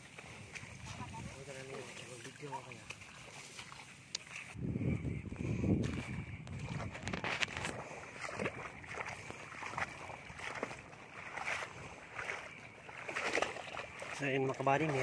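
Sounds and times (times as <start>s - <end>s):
footsteps splashing through water: 0.0s - 4.6s, 5.8s - 15.0s.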